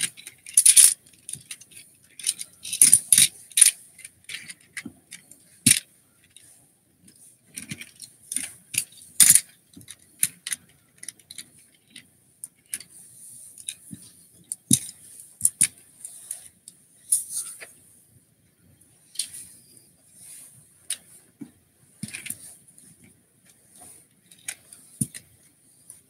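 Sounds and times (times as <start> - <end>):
plastic toy figures clicking: 0.0 - 4.8.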